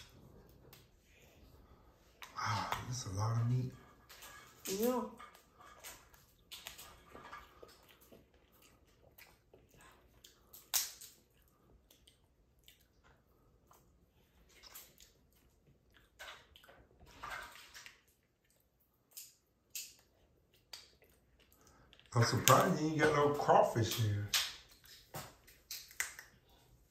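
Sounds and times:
wet squishing: 0.0s - 26.9s
crab shells cracking: 10.3s - 11.3s, 19.1s - 22.9s, 23.8s - 26.4s.

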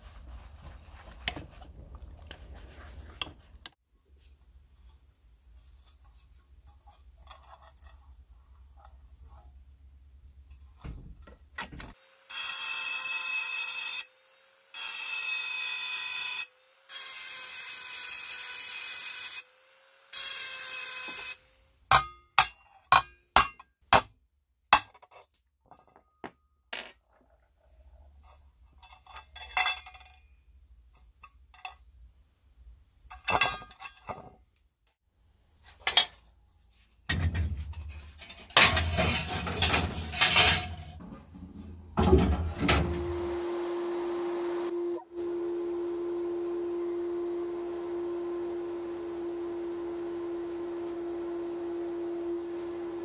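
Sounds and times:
rough scraping: 36.6s - 42.6s.

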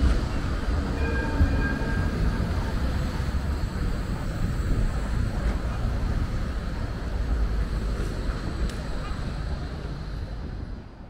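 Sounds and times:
passing tram running with whine: 0.0s - 11.0s.

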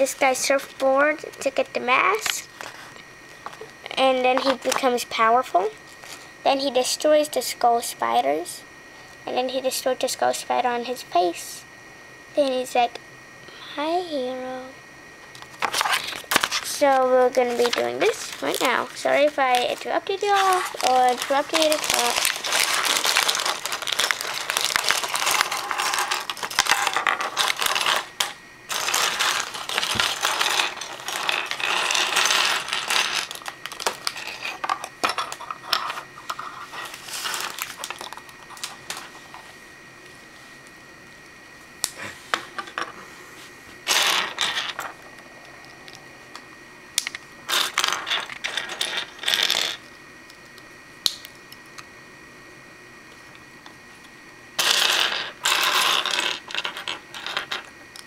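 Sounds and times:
plastic pieces clattering on wood: 17.6s - 35.9s, 47.5s - 49.8s, 54.6s - 57.7s.

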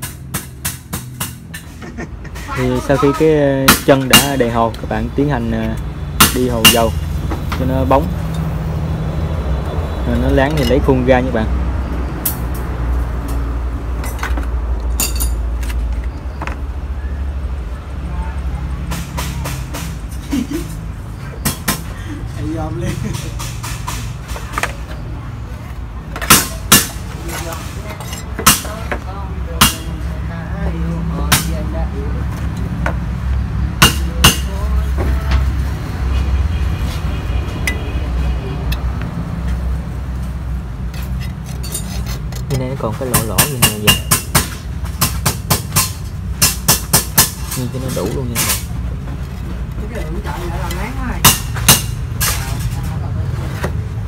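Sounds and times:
metal trowel scraping cement: 40.9s - 42.6s.

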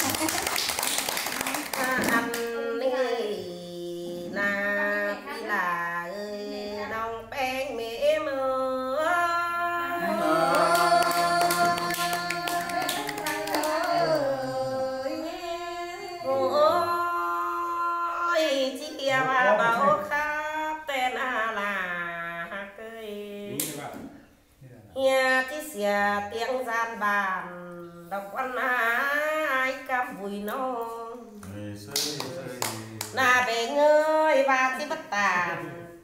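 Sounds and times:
woman singing unaccompanied: 1.3s - 23.7s, 25.0s - 31.5s, 33.1s - 36.0s.

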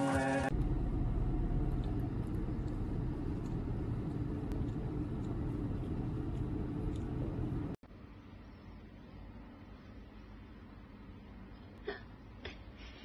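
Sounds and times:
car cabin rumble: 0.0s - 7.8s.

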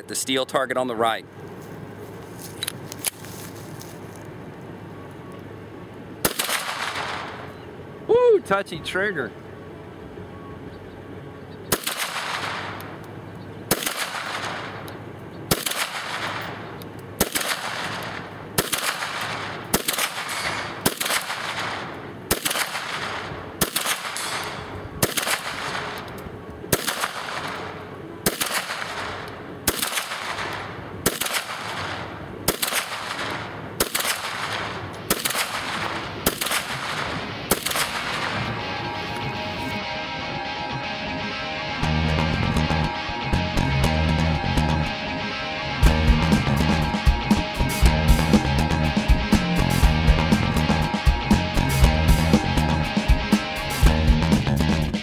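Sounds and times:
pistol shots with echo: 6.2s - 7.5s, 11.7s - 13.0s, 13.7s - 14.9s, 15.5s - 26.1s, 26.7s - 38.5s.

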